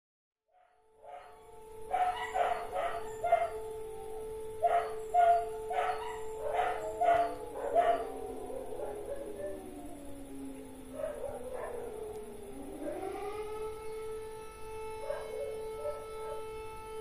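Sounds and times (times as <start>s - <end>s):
dog barking: 0.6s - 3.6s, 4.6s - 9.7s, 10.8s - 12.0s, 15.0s - 16.5s
air-raid siren wailing: 0.6s - 17.0s.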